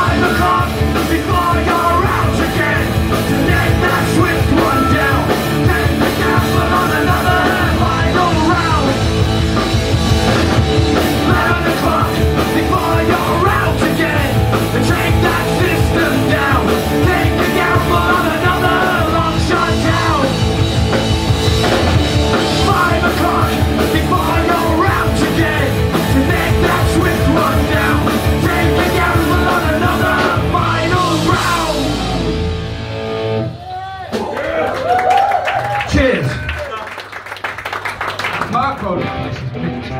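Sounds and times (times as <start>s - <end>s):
man singing: 0.0s - 9.1s, 10.9s - 20.5s, 22.3s - 32.3s
electric guitars: 0.0s - 34.2s, 38.3s - 39.9s
drums: 0.0s - 39.9s.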